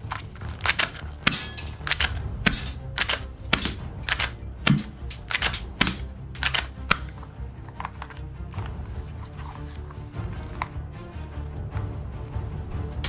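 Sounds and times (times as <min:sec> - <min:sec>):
plastic toy guns clattering: 0:00.0 - 0:08.7.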